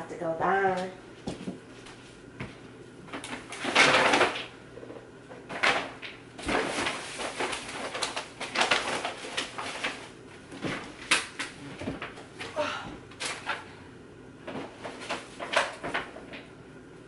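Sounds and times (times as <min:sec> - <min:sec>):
objects rustling and knocking: 0:00.8 - 0:13.7, 0:14.4 - 0:16.5.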